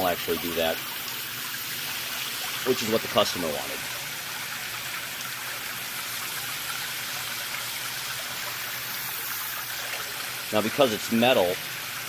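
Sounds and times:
hose spraying water: 0.0 - 12.0.

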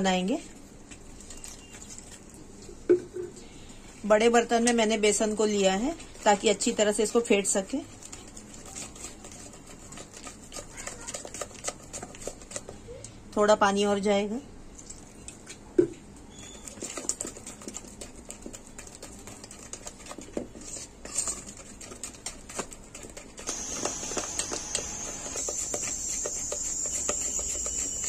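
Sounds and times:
batter slapping: 5.2 - 13.0, 15.8 - 28.0.

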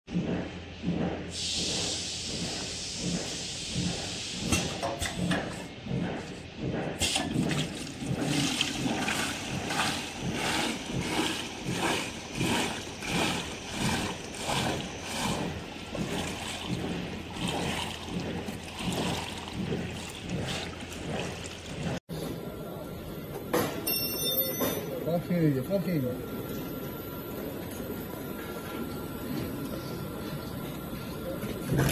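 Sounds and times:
liquid splashing into plastic pails: 7.1 - 22.0.

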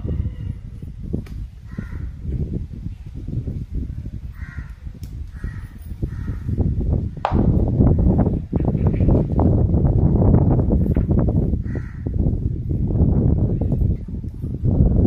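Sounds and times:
low rumble on microphone: 0.0 - 15.0
crows cawing: 4.4 - 4.8, 11.6 - 12.1.

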